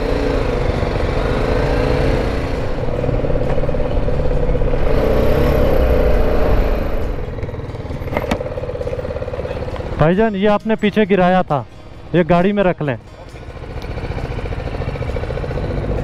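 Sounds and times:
motorcycle engine running: 0:00.0 - 0:16.0
wind rumble: 0:02.5 - 0:08.3.

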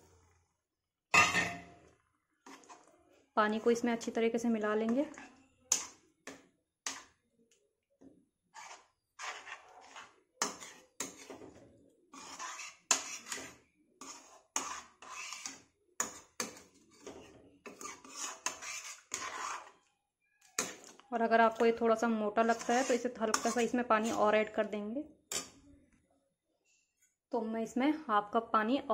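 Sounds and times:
metal spoon scraping a metal pot: 0:02.4 - 0:02.9, 0:03.5 - 0:07.2, 0:08.5 - 0:19.9, 0:20.5 - 0:24.6, 0:25.3 - 0:25.6.

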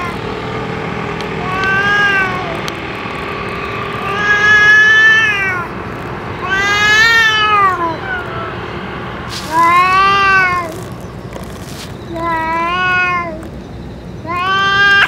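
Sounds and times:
cats yowling: 0:00.0 - 0:00.3, 0:01.3 - 0:02.8, 0:03.9 - 0:08.7, 0:09.3 - 0:10.8, 0:12.1 - 0:13.5, 0:14.2 - 0:15.0.

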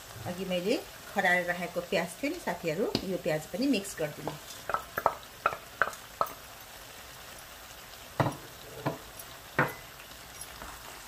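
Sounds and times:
food sizzling in a frying pan: 0:00.0 - 0:11.0
spoon scraping a pan: 0:08.2 - 0:11.0.

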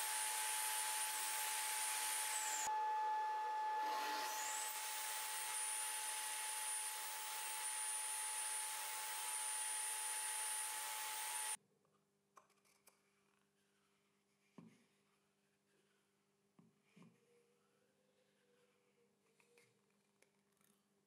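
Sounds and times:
table saw whining: 0:00.0 - 0:11.6.

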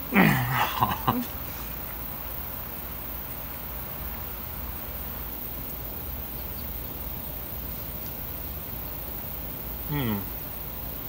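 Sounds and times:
faint high-pitched chirp: 0:06.1 - 0:08.2.

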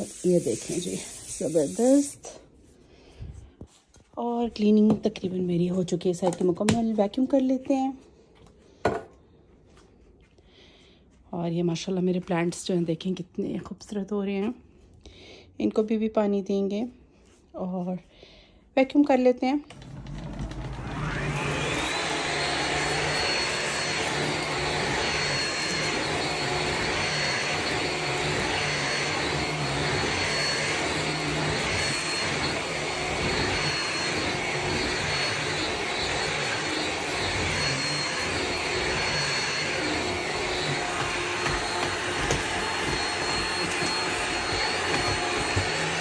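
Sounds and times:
airflow hiss: 0:00.0 - 0:02.4
vacuum cleaner motor whine: 0:00.0 - 0:02.4, 0:19.7 - 0:46.0.

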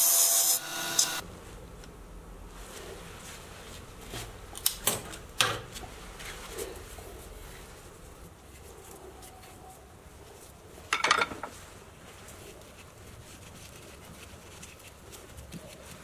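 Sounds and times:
faint workshop background: 0:00.0 - 0:16.0
tools clattering: 0:10.9 - 0:11.5.

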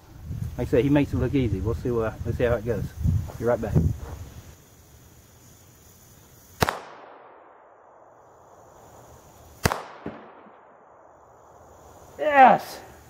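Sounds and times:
pistol shots: 0:06.6 - 0:08.1, 0:09.6 - 0:11.1.

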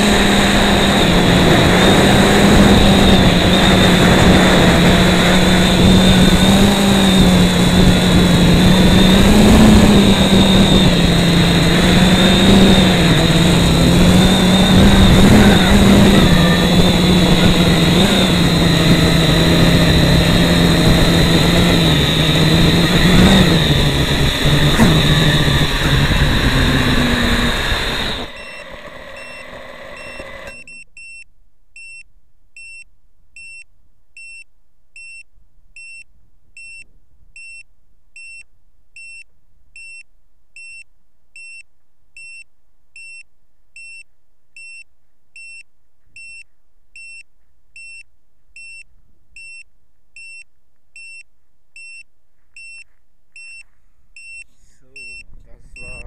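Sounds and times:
quadcopter motors running: 0:00.0 - 0:30.8
short high beeps: 0:28.2 - 0:32.0, 0:32.6 - 0:32.8, 0:33.4 - 0:33.6, 0:34.2 - 0:34.4, 0:35.0 - 0:35.2, 0:35.8 - 0:36.0, 0:36.6 - 0:37.6, 0:38.2 - 0:38.4, 0:39.0 - 0:39.2, 0:39.8 - 0:40.0, 0:40.6 - 0:40.8, 0:41.4 - 0:41.6, 0:42.2 - 0:42.4, 0:43.0 - 0:43.2, 0:43.8 - 0:44.0, 0:44.6 - 0:44.8, 0:45.4 - 0:45.6, 0:46.2 - 0:47.2, 0:47.8 - 0:48.0, 0:48.6 - 0:48.8, 0:49.4 - 0:49.6, 0:50.2 - 0:50.4, 0:51.0 - 0:51.2, 0:51.8 - 0:52.0, 0:52.6 - 0:56.0.

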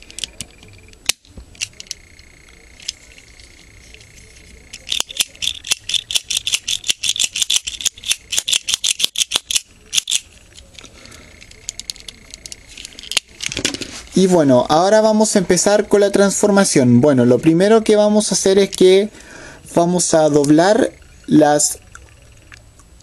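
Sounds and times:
plastic toy clicking: 0:04.7 - 0:13.6.

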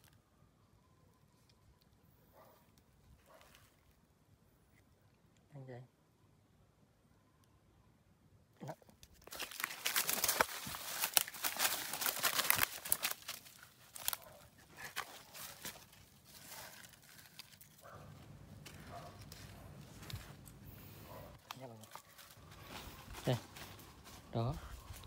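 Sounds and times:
dry leaves rustling and crackling: 0:09.2 - 0:25.0.

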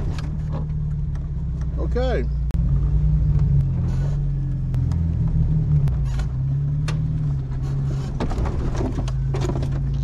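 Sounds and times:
car engine running low: 0:00.0 - 0:10.0.

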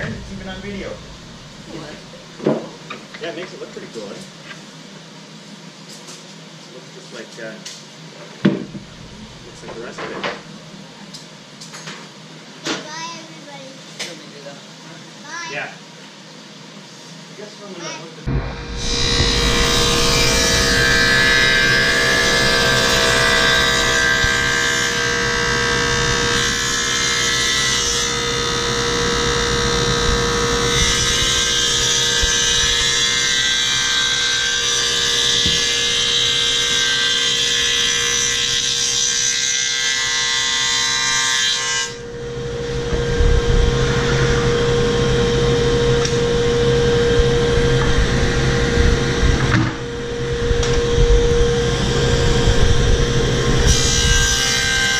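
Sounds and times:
table saw running: 0:18.3 - 0:54.9
saw cutting plywood rushing noise: 0:18.8 - 0:38.9.

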